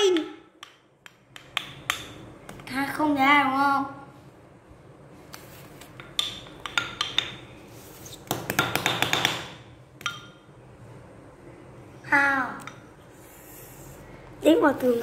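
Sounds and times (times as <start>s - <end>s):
wooden sticks clacking: 0.0s - 2.6s, 5.9s - 7.6s.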